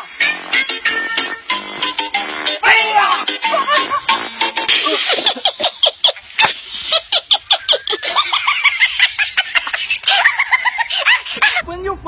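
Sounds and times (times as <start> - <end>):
high-pitched human laughter: 3.4 - 11.6.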